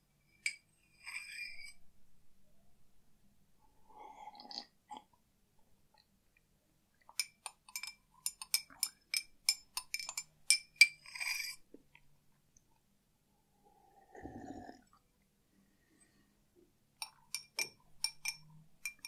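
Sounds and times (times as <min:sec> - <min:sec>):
spoon clinking in a cup: 0:00.3 - 0:01.8, 0:07.1 - 0:11.6, 0:17.0 - 0:19.0.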